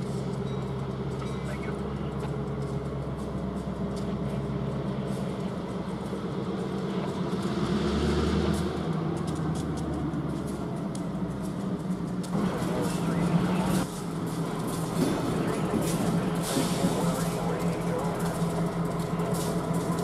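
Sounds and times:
locomotive engines rumbling: 0.0s - 20.0s
exhaust puffing: 12.2s - 20.0s.

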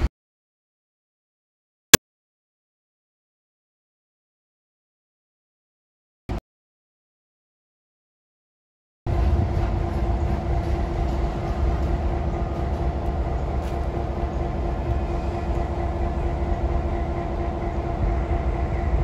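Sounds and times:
diesel locomotive engine drone: 9.1s - 19.0s.

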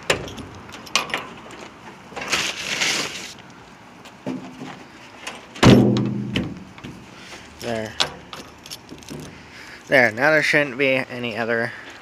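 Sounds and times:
tarp rustling and crinkling: 1.5s - 3.4s.

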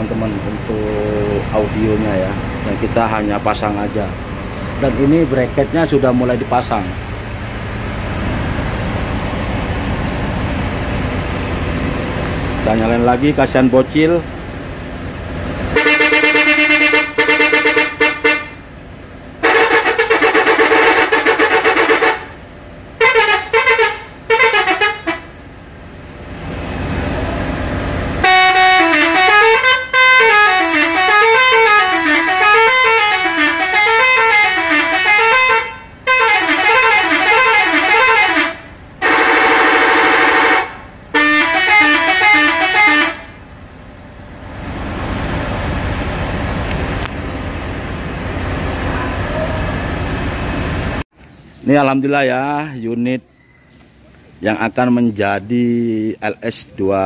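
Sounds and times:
multi-tone air horn melodies: 15.7s - 18.6s, 19.4s - 22.4s, 23.0s - 25.4s, 28.2s - 43.4s.

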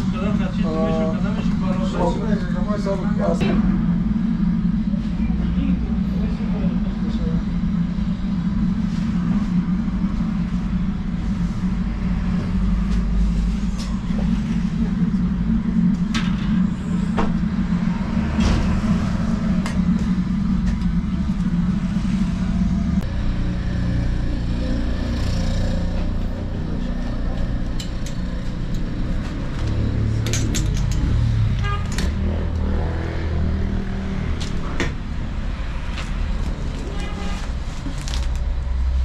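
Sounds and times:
steady low roar: 0.0s - 39.0s.

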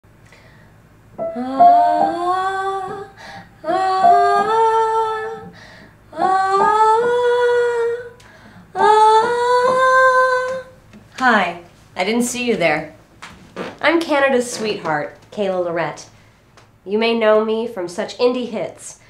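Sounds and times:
piano notes: 1.1s - 5.6s
woman singing: 1.2s - 8.2s, 8.8s - 10.8s.

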